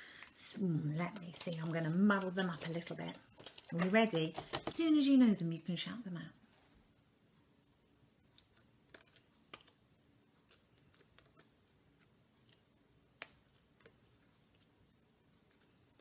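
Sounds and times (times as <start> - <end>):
flashcards clicking and flicking: 8.3 - 9.8, 10.4 - 14.0.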